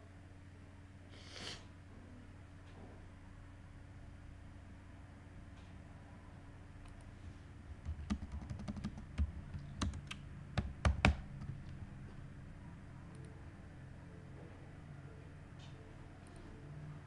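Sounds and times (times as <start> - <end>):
keyboard typing: 7.8 - 11.8.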